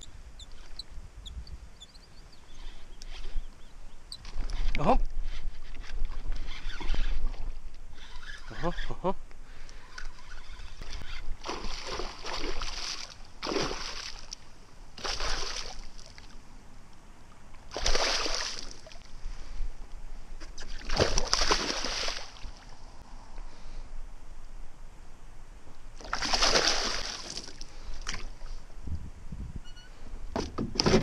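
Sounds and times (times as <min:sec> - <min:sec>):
fish thrashing and splashing: 0:10.3 - 0:14.3, 0:17.7 - 0:19.0, 0:20.7 - 0:22.5, 0:26.0 - 0:28.3.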